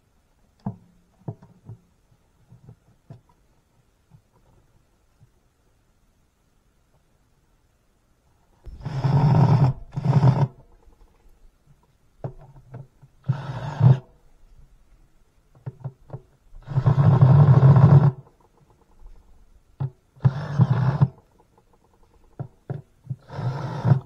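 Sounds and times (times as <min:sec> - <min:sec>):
cordless drill driving screws: 0:20.2 - 0:21.1.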